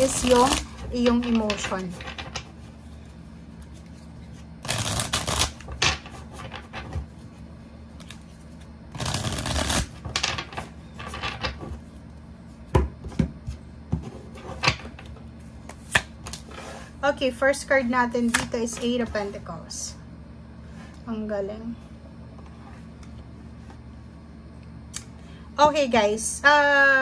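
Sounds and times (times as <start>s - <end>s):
cards riffle shuffled: 3.6s - 6.6s, 8.0s - 10.2s.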